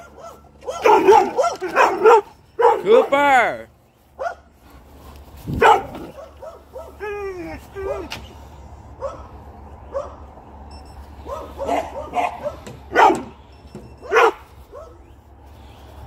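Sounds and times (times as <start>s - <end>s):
dog barking: 0.0s - 3.1s, 4.2s - 4.5s, 5.6s - 7.0s, 9.0s - 9.3s, 9.9s - 10.2s, 11.2s - 13.3s, 14.0s - 15.1s.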